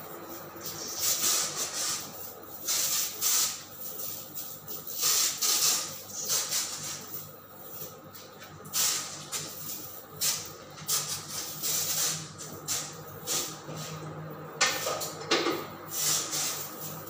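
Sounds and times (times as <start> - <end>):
insecticide sprayer hissing: 15.9 - 17.0.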